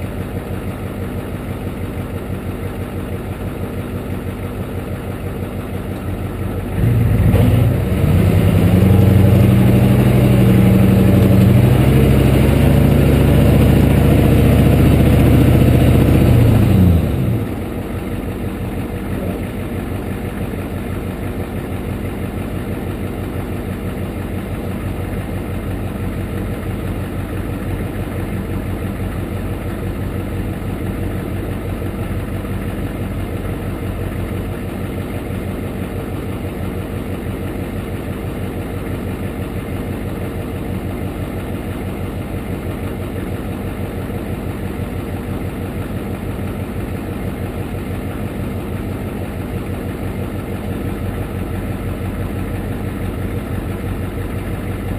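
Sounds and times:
diesel truck engine revving: 6.6s - 17.9s.

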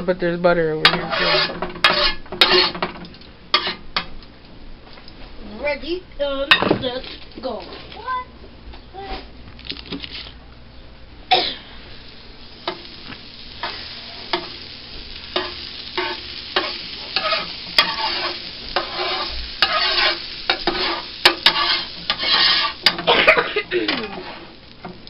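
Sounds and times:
metal spatula scraping griddle: 0.8s - 2.9s, 3.5s - 3.8s, 12.6s - 23.3s, 24.0s - 24.6s
butter sizzling: 0.8s - 4.2s, 9.4s - 25.0s.

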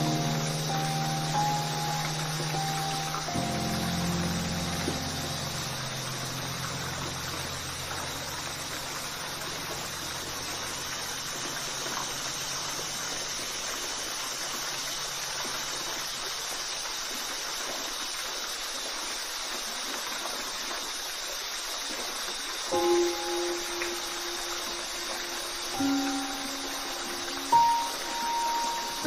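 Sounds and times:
low background music: 0.0s - 12.3s, 22.7s - 29.0s
waterfall rushing: 0.0s - 29.0s.

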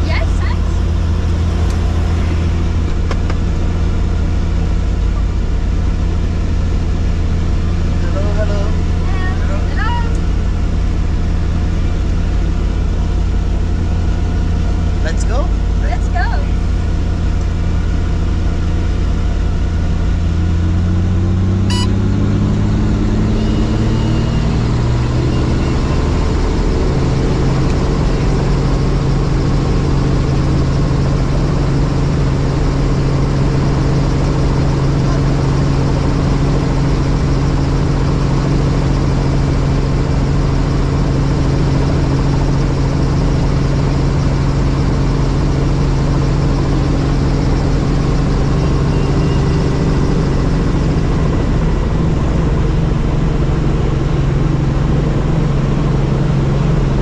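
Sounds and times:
helicopter turbine whine: 0.0s - 57.0s
short beep: 21.6s - 22.2s, 23.3s - 26.1s, 48.6s - 49.8s.

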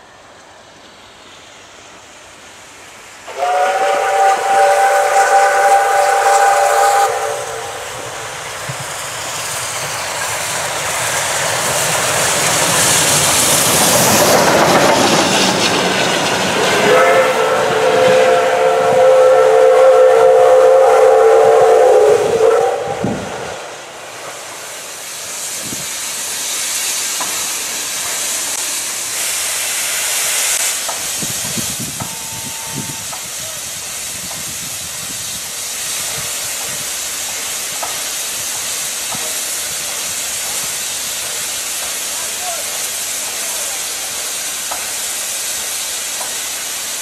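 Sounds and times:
steam hiss and running noise: 0.0s - 47.0s
steam locomotive whistle: 3.2s - 8.4s, 16.6s - 23.7s, 31.7s - 33.8s.

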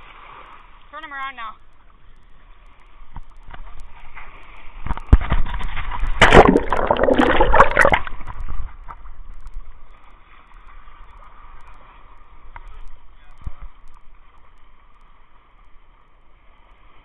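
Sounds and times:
water splashing and sloshing: 2.9s - 9.2s
underwater churning and gurgling: 5.5s - 8.8s.

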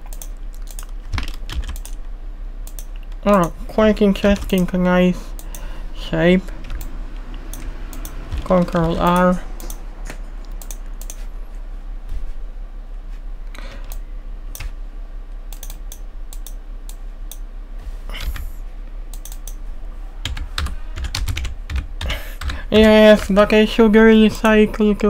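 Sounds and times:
computer keyboard clicking: 0.0s - 2.0s, 2.7s - 3.6s, 4.2s - 4.7s, 6.6s - 9.8s, 10.5s - 11.2s, 15.5s - 16.6s, 19.1s - 19.6s, 20.2s - 22.6s
low hum: 0.0s - 25.0s.

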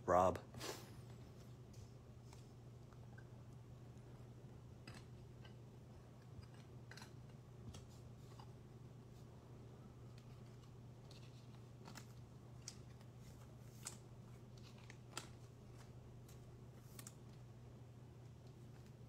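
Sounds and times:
low steady hum: 0.0s - 19.0s
trading cards rustling and clicking: 10.1s - 17.5s.

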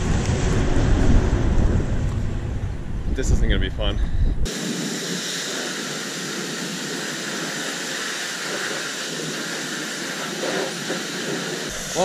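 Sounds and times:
pressure washer spraying: 4.5s - 12.0s.

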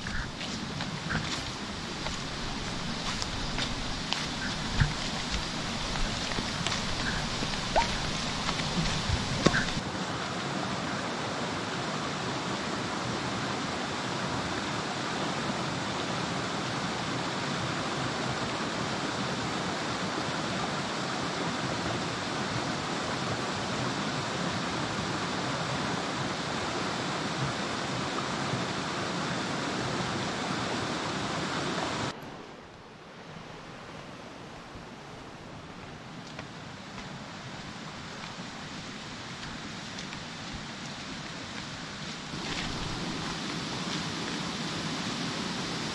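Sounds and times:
stream rushing over stones: 0.0s - 45.9s.

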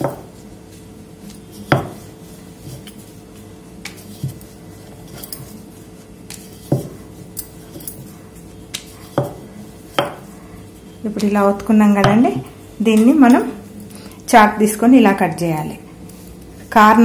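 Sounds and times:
rolling pin rolling dough: 0.0s - 17.0s
rolling pin knocking on counter: 1.7s - 2.0s, 9.1s - 10.2s.

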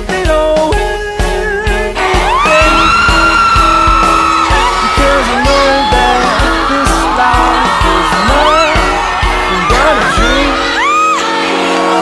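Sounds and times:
person singing: 0.0s - 12.0s
pop song with drum beat: 0.0s - 12.0s.

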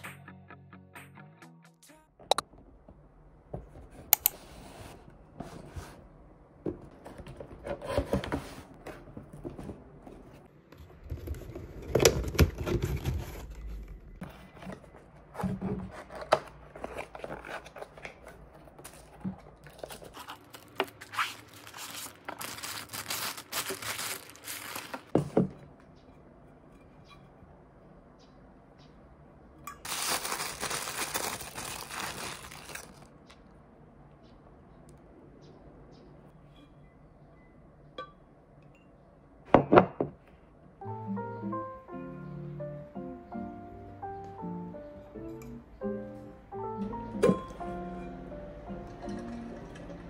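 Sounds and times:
cardboard and paper rustling: 6.8s - 25.4s, 29.8s - 33.1s.

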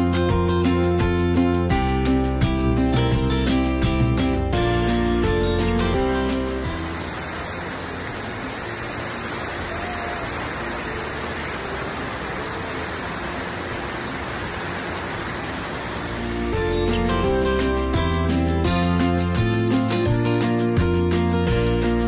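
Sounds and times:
waterfall roaring: 5.7s - 19.2s.

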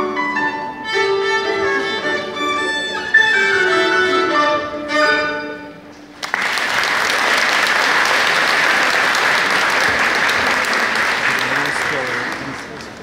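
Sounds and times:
violin and piano playing: 0.0s - 6.1s
audience applause: 6.2s - 13.0s.

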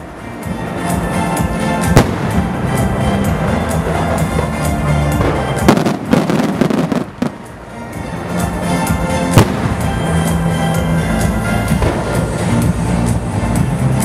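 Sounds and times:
music: 0.0s - 14.0s
fireworks crackling pops: 1.8s - 7.6s, 9.3s - 10.1s
fireworks bang: 1.9s - 2.5s, 5.2s - 7.4s, 9.3s - 9.9s.

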